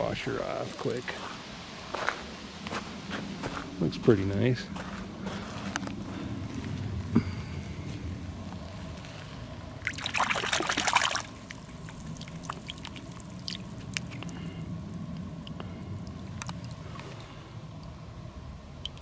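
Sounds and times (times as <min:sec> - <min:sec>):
water dripping and trickling: 0:09.8 - 0:18.0, 0:18.8 - 0:19.0
hand splashing in puddle: 0:09.9 - 0:11.3.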